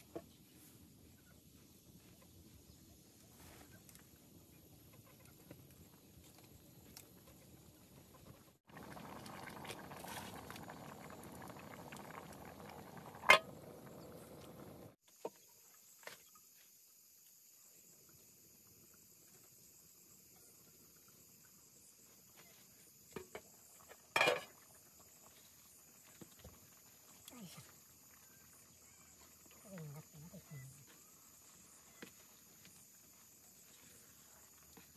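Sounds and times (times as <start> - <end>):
pot bubbling over fire: 3.6 - 15.0, 22.0 - 34.9.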